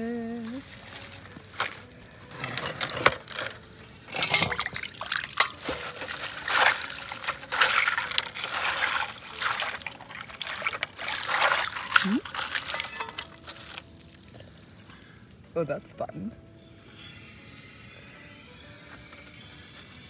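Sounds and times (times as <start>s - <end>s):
water splashing through mesh: 4.1s - 14.9s.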